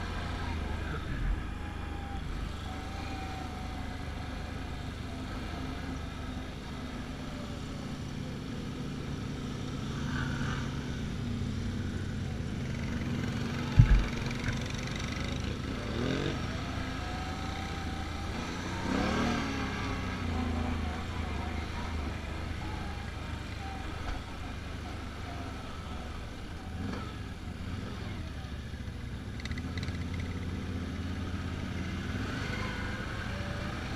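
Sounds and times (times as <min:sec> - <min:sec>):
atv engine revving: 0:00.0 - 0:33.9
other atv engines: 0:00.0 - 0:33.9
sharp thump: 0:13.7 - 0:14.4.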